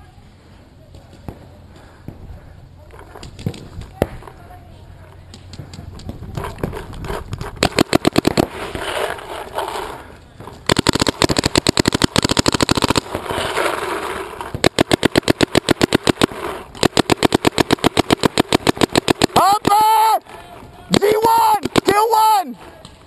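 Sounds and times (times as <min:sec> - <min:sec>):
paintball marker rapid firing: 0:07.3 - 0:09.2, 0:10.6 - 0:19.8, 0:20.9 - 0:22.2.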